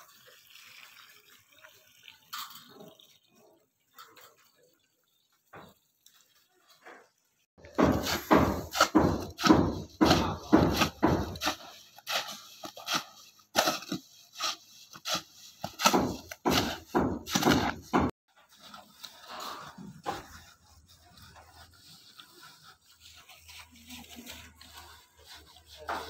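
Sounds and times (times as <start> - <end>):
hoe chopping through wet mortar: 7.6 - 18.2.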